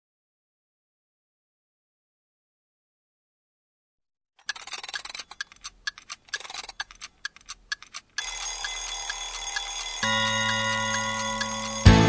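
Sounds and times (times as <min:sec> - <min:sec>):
clock ticking: 0:04.4 - 0:12.0
steady ringing tones: 0:08.2 - 0:12.0.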